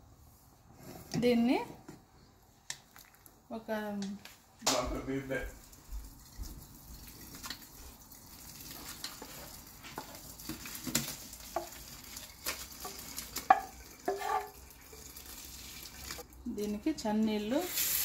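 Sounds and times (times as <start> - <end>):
hot water poured into sink: 5.6 - 16.4, 17.5 - 18.0
wooden spoon knocking metal pot: 12.8 - 14.6.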